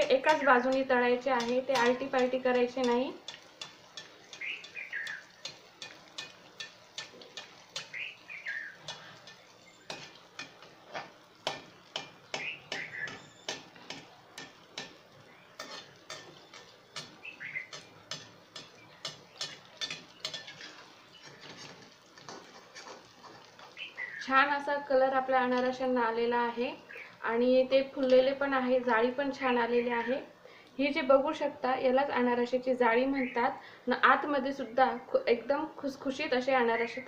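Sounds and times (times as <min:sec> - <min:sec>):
metal spoon tapping pan: 0:00.0 - 0:08.2, 0:08.8 - 0:23.8
frying in hot fat: 0:00.0 - 0:37.0
bird chirping: 0:04.1 - 0:05.5, 0:07.8 - 0:10.0, 0:12.2 - 0:14.3, 0:15.2 - 0:21.5, 0:23.7 - 0:24.3.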